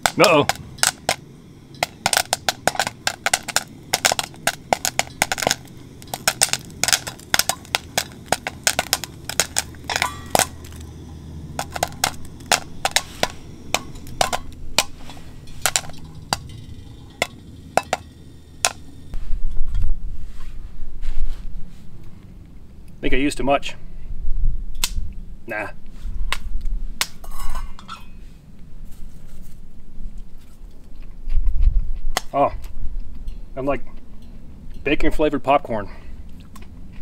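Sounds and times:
popcorn kernels popping: 0:00.0 - 0:19.2
low rumble: 0:00.0 - 0:22.9.

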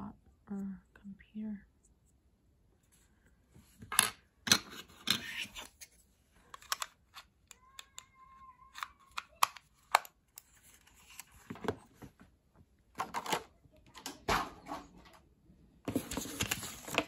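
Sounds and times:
plastic mouse clicks and knocks: 0:08.7 - 0:10.5.

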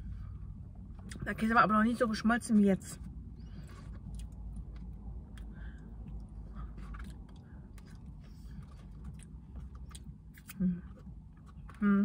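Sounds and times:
steady low rumble: 0:00.0 - 0:12.0
person chewing: 0:03.4 - 0:11.8.

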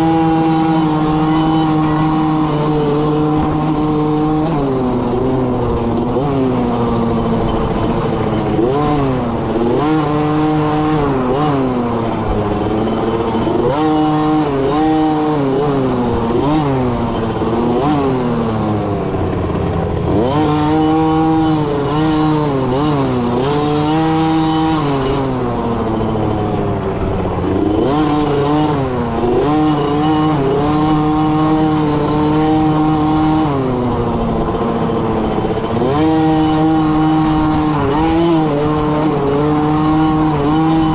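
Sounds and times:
dirt bike engine revving: 0:00.0 - 0:40.9.

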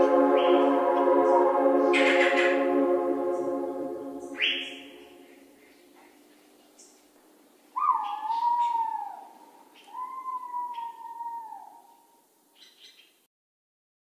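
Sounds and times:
long animal cries: 0:07.8 - 0:11.9.

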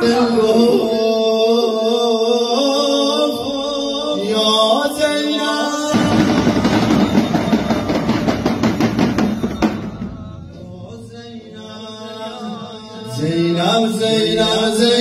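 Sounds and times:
man chanting into a microphone: 0:00.0 - 0:06.7, 0:10.2 - 0:15.0
rhythmic beats: 0:05.9 - 0:11.7.

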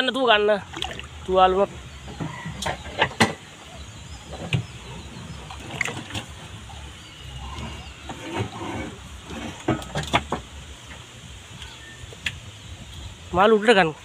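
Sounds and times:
steady low rumble: 0:00.3 - 0:14.0.

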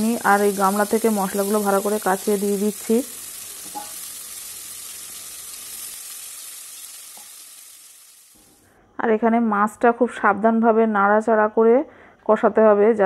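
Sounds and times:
fish sizzling in hot oil: 0:00.0 - 0:08.6.

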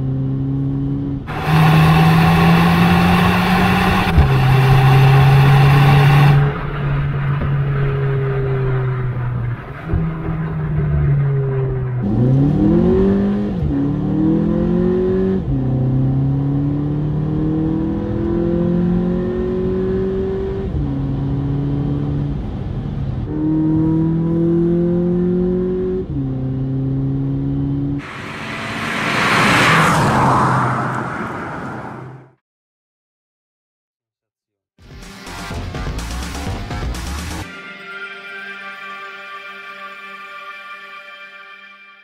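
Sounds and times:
car engine accelerating through gears: 0:00.0 - 0:32.3
loud rushing noise: 0:01.3 - 0:12.9, 0:28.0 - 0:32.2.

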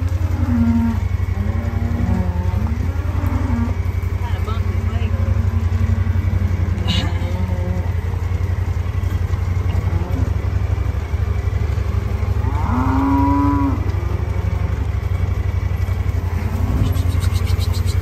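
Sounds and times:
cow mooing: 0:00.0 - 0:08.3, 0:09.6 - 0:10.5, 0:12.1 - 0:14.9, 0:16.0 - 0:18.0
low engine rumble: 0:00.0 - 0:18.0.

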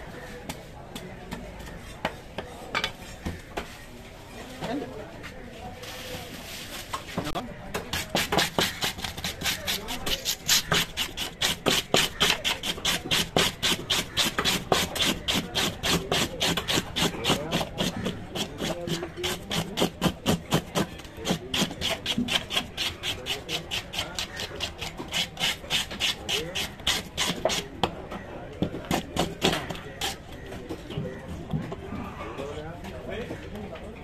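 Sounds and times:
scaler scraping fish scales: 0:07.9 - 0:27.6.

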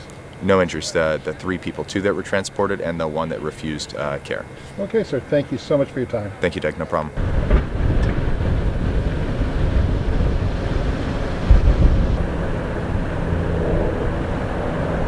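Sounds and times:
low outdoor rumble: 0:00.0 - 0:15.0
loud bump: 0:07.2 - 0:12.6.

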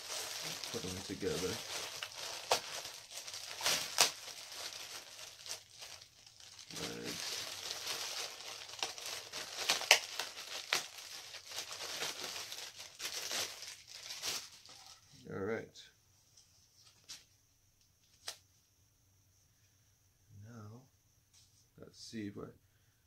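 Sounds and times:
plastic packaging crinkling: 0:00.0 - 0:15.2.

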